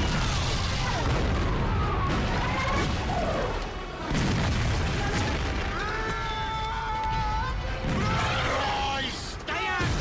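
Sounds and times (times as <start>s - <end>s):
gunfire booms: 0.0s - 5.9s.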